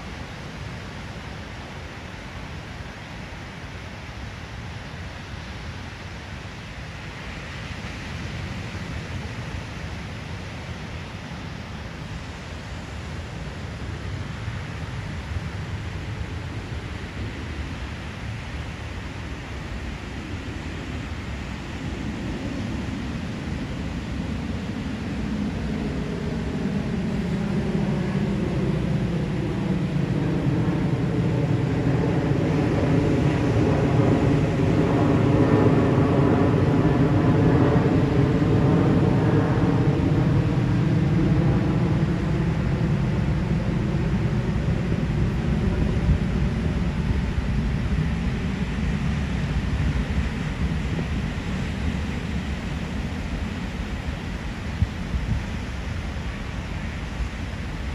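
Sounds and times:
airplane flying past: 0:08.4 - 0:57.9.

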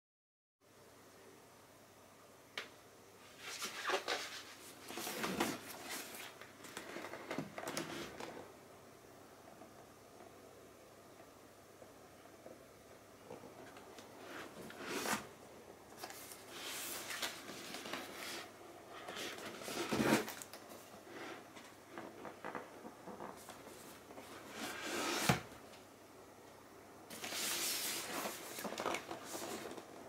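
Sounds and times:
cardboard rustle: 0:16.0 - 0:22.7, 0:27.1 - 0:30.0
cardboard box scraping: 0:19.1 - 0:20.4.

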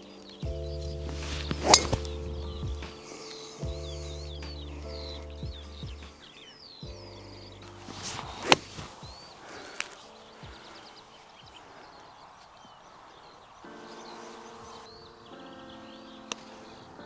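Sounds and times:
golf club swing whoosh: 0:01.1 - 0:02.3, 0:07.9 - 0:09.1
golf ball struck with crack: 0:01.1 - 0:03.2, 0:07.9 - 0:09.2.

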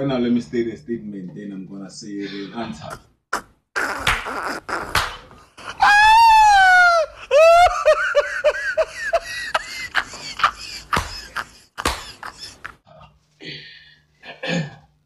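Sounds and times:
man laughing hard: 0:05.6 - 0:12.9.

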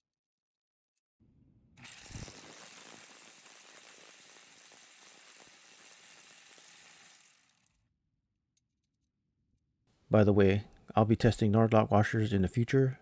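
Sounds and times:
metallic rattle and buzz: 0:01.8 - 0:07.8.

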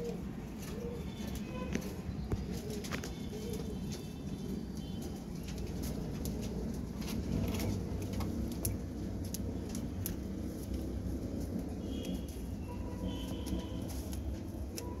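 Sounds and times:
pigeons cooing: 0:00.0 - 0:15.0.

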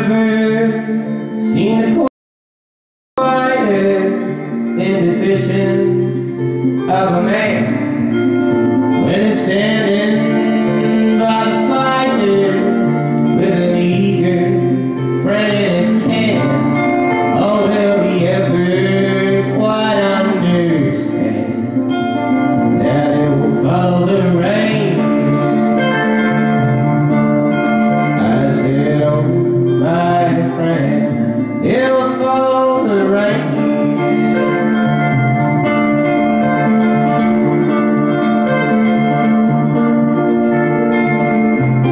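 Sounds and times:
electric guitar: 0:00.0 - 0:02.1, 0:03.2 - 0:41.9
man singing folk song: 0:00.0 - 0:02.1, 0:03.2 - 0:26.4, 0:28.0 - 0:35.2.

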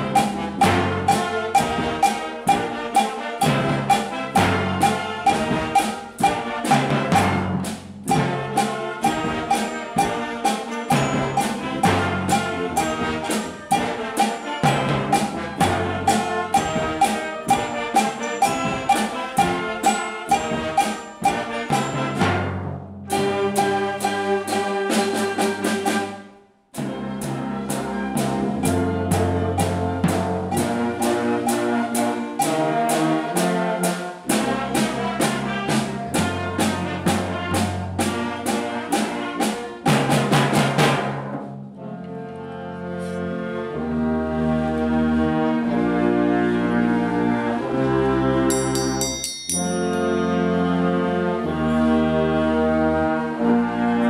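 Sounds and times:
percussion beat: 0:00.0 - 0:26.1, 0:26.8 - 0:41.6, 0:48.5 - 0:50.7
brass playing: 0:00.0 - 0:41.1, 0:49.8 - 0:54.0
high metallic shimmer: 0:48.5 - 0:50.6.

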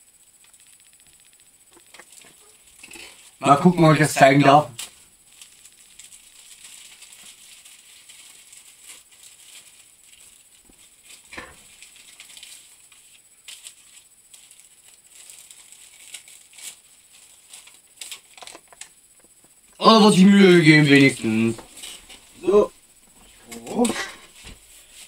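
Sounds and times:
packaging rustling and crinkling: 0:04.7 - 0:19.0.

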